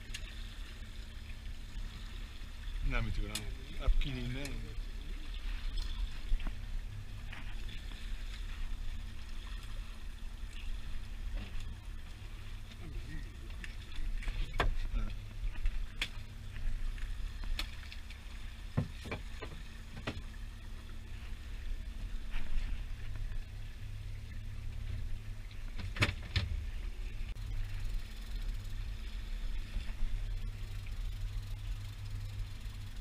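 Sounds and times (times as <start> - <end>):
outboard motor running: 0.0 - 33.0
knocks from hull and gear: 18.8 - 20.2.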